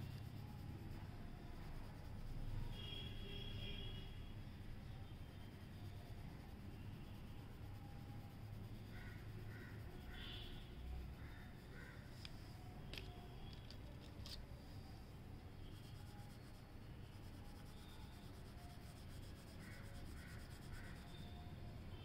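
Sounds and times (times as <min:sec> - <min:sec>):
pencil scratching on paper: 0:05.6 - 0:11.4, 0:15.6 - 0:21.4.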